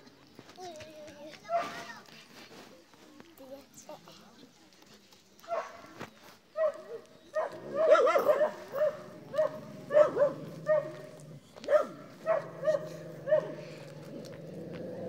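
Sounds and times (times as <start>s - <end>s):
dog barking: 5.5s - 5.8s, 6.6s - 11.1s, 11.7s - 13.6s.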